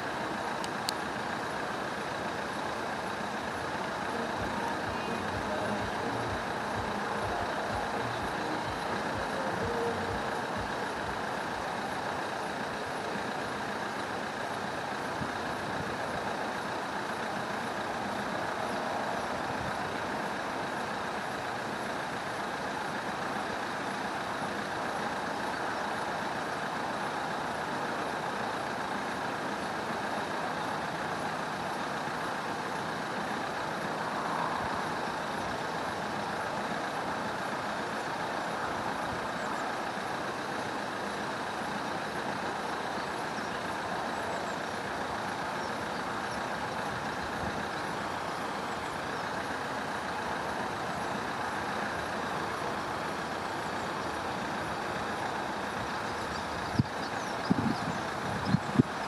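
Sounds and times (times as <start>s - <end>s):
level crossing warning alarm: 2.0s - 13.8s.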